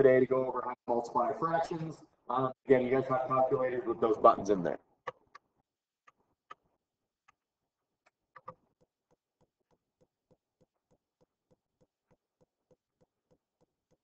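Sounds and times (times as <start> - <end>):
soft steady ticking: 8.4 - 14.0.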